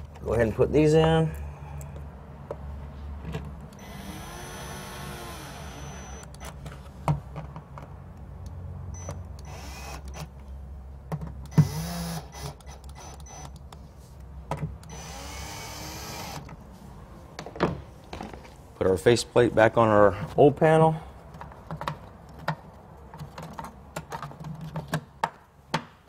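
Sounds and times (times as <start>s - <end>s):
cordless drill whining: 3.8s - 6.4s, 9.4s - 10.3s, 11.5s - 13.5s, 14.8s - 16.5s.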